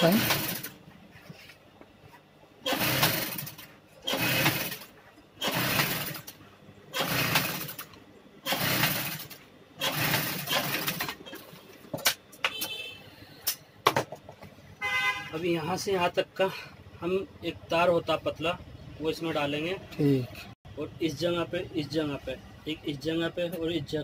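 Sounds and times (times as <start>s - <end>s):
sewing machine stitching: 0.0s - 0.8s, 2.6s - 11.5s.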